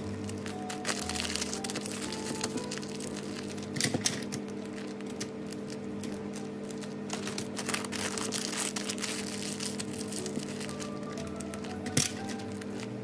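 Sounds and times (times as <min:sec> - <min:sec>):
background music: 0:00.0 - 0:03.8, 0:09.3 - 0:13.0
paper crinkling and rustling: 0:00.0 - 0:13.0.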